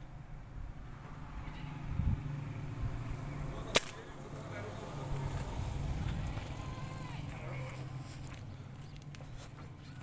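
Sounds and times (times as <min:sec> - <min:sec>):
air rifle shot crack: 0:03.7 - 0:04.1.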